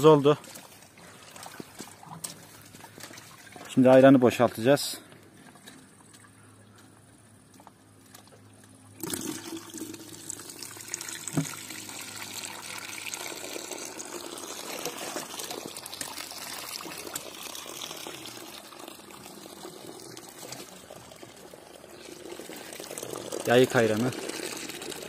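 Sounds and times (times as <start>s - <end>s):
liquid stream splashing into bowl: 9.0s - 25.0s.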